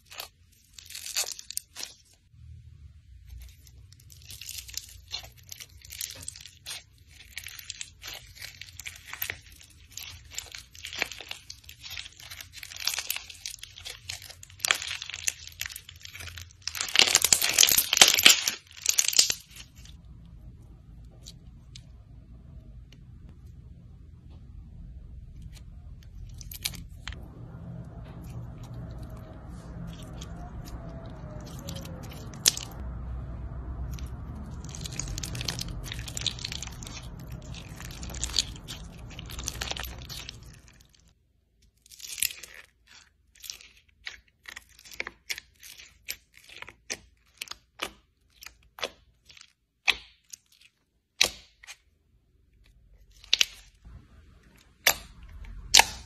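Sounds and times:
slime crackling and crunching: 0.0 - 2.3, 3.1 - 22.6, 25.2 - 51.9, 52.6 - 56.0
low rumble: 19.3 - 41.1, 53.8 - 56.0.

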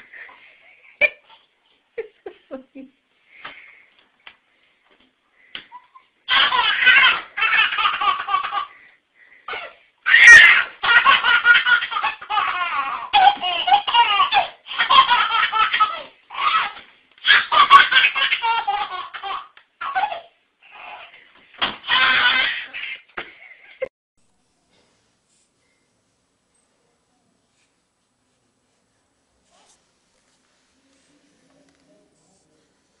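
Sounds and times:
baby laughing: 5.6 - 8.8, 9.5 - 21.2, 21.8 - 23.9.

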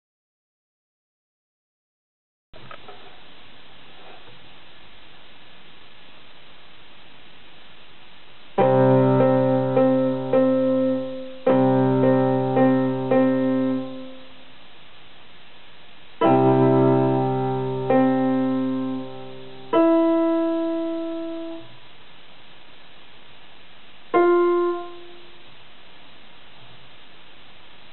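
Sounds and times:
electronic keyboard piano: 8.6 - 14.4, 16.2 - 21.8, 24.1 - 25.4.

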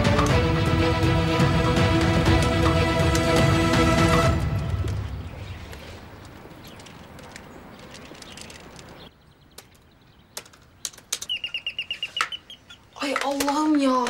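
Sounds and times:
faint outdoor ambience: 0.0 - 14.0
high chirps: 11.2 - 13.0.

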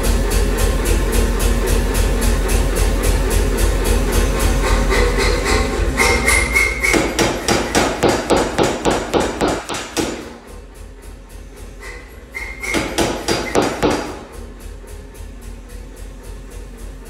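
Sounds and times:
low machine hum: 0.0 - 17.0
power hammer striking steel: 4.7 - 10.6, 11.8 - 14.5.

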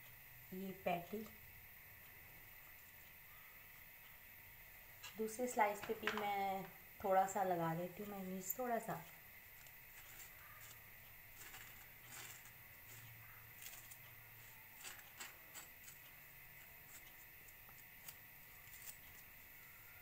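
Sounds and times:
spoon spreading mayonnaise on bread: 9.0 - 19.5.

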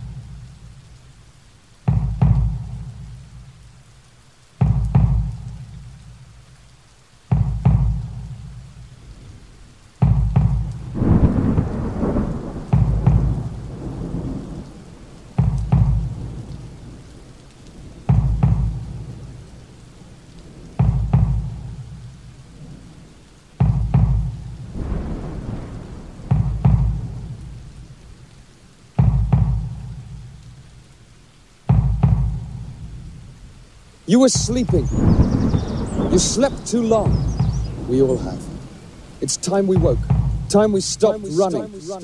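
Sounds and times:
deep drum hits: 1.9 - 3.4, 4.6 - 6.0, 7.3 - 8.7, 10.0 - 14.4, 15.4 - 16.6, 18.0 - 19.2, 20.8 - 22.1, 23.6 - 27.7, 29.0 - 30.3, 31.7 - 33.1, 34.4 - 37.9, 39.8 - 41.9.

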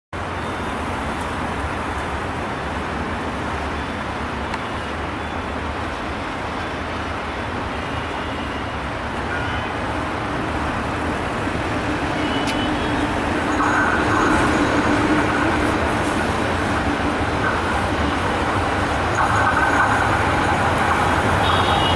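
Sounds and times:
locomotive engine drone: 0.2 - 21.9
outdoor rushing rumble: 10.0 - 21.9.

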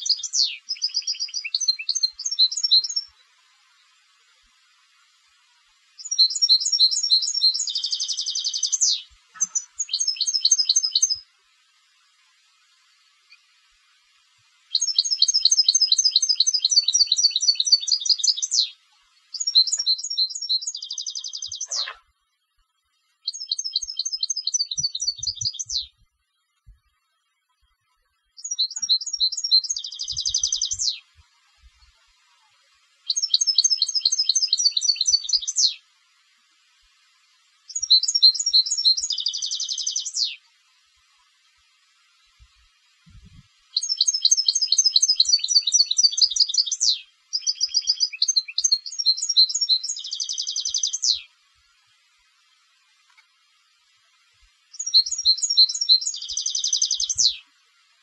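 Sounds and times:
goldfinch twittering song: 0.0 - 4.0, 5.9 - 11.3, 14.6 - 22.0, 23.2 - 26.0, 28.3 - 31.2, 33.0 - 35.8, 37.7 - 40.5, 43.1 - 51.3, 54.7 - 57.5.

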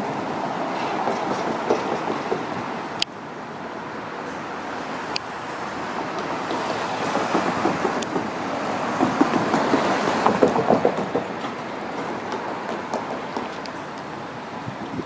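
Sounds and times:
passing vehicle: 0.0 - 15.0
quick run of knocks: 9.0 - 11.6.

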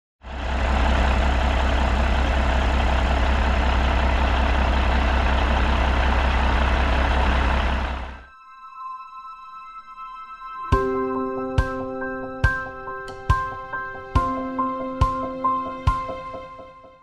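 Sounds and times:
diesel truck engine idling: 0.2 - 8.2.

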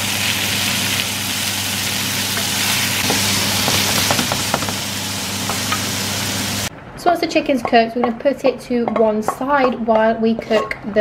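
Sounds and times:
chicken sizzling in oil: 0.0 - 6.7.

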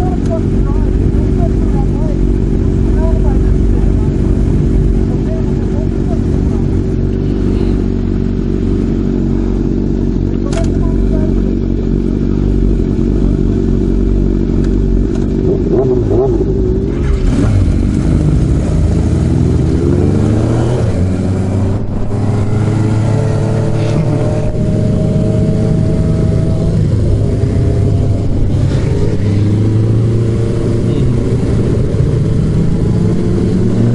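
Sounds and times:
motorcycle engine accelerating: 0.0 - 33.9
wind rushing: 18.9 - 30.6.

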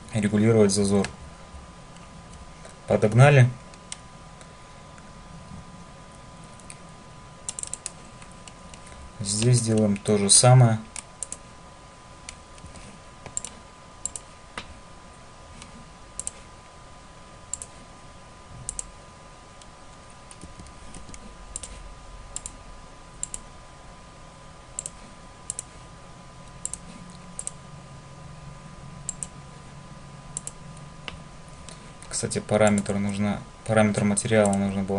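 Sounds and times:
computer mouse clicking: 7.5 - 10.1, 10.9 - 11.4, 12.2 - 14.7, 15.6 - 16.4, 17.5 - 17.8, 18.6 - 18.9, 20.3 - 21.8, 22.4 - 22.6, 23.2 - 23.4, 24.8 - 25.8, 26.4 - 27.6, 29.1 - 29.4, 30.4 - 33.2, 34.4 - 34.7.

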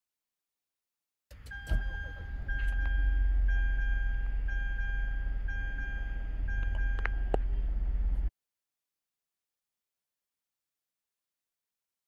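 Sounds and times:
low engine rumble: 1.3 - 8.3
dashboard warning chime: 1.4 - 7.5
clicks: 6.6 - 7.5.

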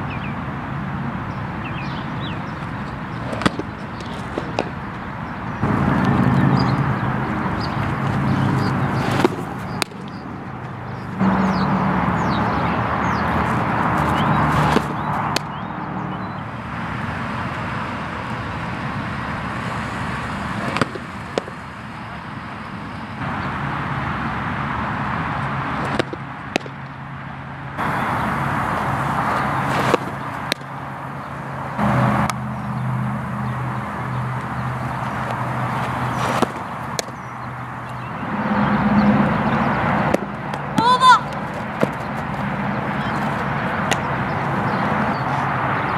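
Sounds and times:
low engine hum: 0.0 - 45.9
softball smacking into mitt: 3.3 - 4.8, 36.2 - 37.2.

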